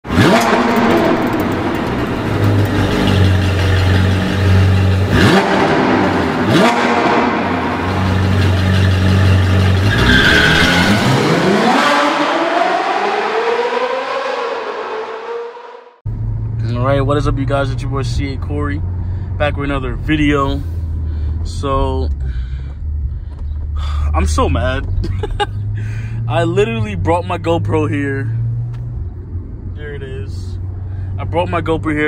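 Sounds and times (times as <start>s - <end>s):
exhaust cracks: 0.0s - 12.1s
car exhaust revving: 0.0s - 21.5s.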